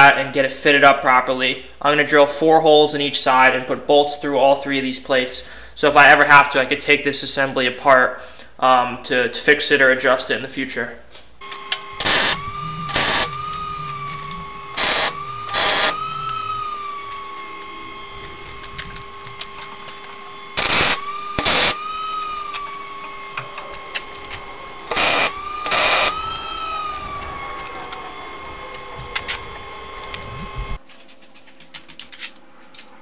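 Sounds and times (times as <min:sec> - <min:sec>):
welding arc bursts: 0:11.7 - 0:13.6, 0:14.7 - 0:17.0, 0:20.5 - 0:22.8, 0:24.8 - 0:27.9.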